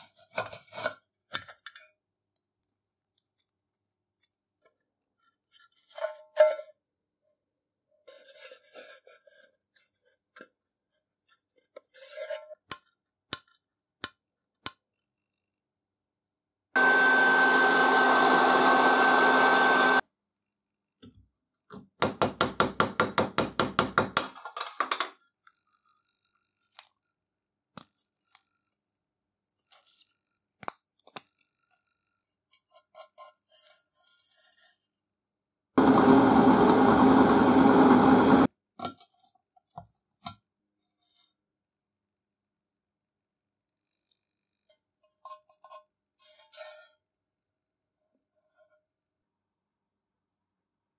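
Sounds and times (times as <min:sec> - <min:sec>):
heat gun blowing and whining: 0:16.8 - 0:20.0, 0:35.8 - 0:38.5.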